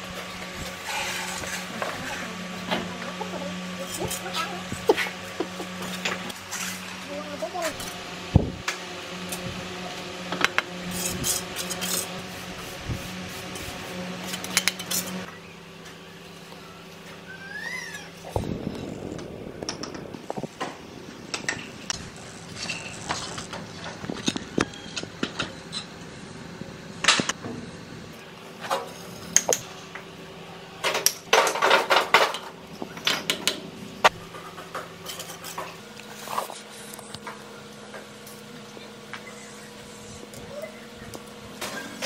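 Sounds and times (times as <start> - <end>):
trowel scraping bricks: 0.7 - 2.4.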